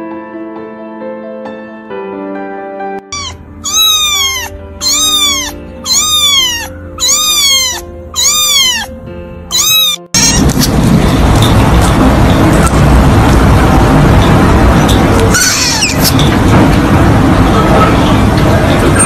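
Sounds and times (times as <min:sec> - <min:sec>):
soft piano music: 0:00.0 - 0:19.0
kitten meowing: 0:03.1 - 0:10.7, 0:15.3 - 0:16.2
loud steady rushing noise: 0:10.2 - 0:19.0.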